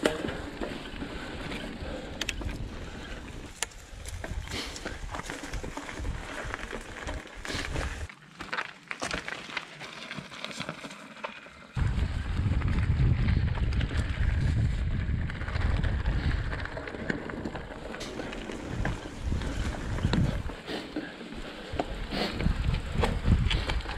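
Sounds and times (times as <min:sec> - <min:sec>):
bike clicks and rattles: 0:00.0 - 0:23.9
bike tyres crunching on gravel: 0:00.0 - 0:23.9
wind rumble on microphone: 0:11.8 - 0:20.6, 0:21.7 - 0:23.9.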